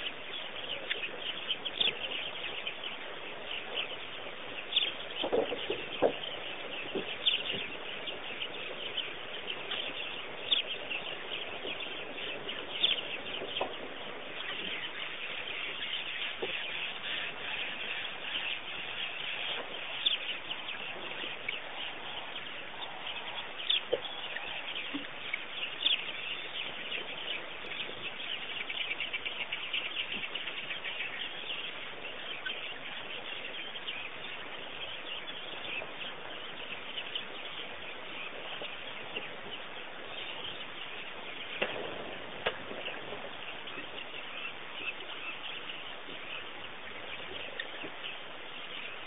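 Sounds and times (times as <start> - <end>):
small birds chirping: 0.0 - 49.0.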